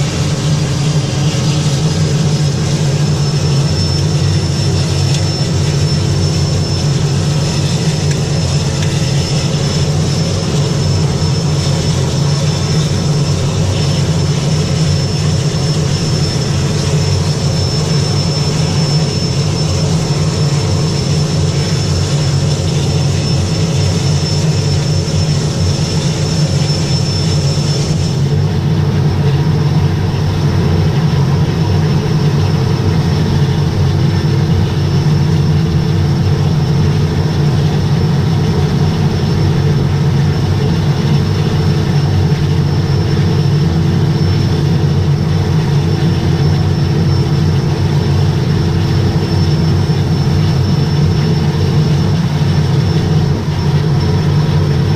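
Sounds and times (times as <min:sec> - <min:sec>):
high turbine whine: 0:00.0 - 0:54.9
propeller hum: 0:00.0 - 0:54.9.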